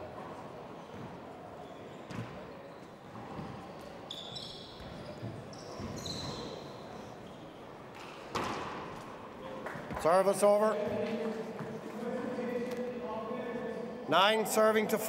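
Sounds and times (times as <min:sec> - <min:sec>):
sneakers squeaking on court: 0:00.7 - 0:09.0
ball smacking walls and floor: 0:08.3 - 0:08.8.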